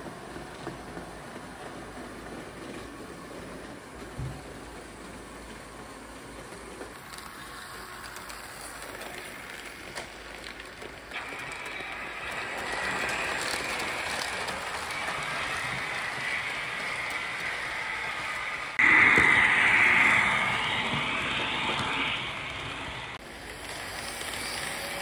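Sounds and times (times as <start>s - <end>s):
model train wheels rolling: 0.0s - 25.0s.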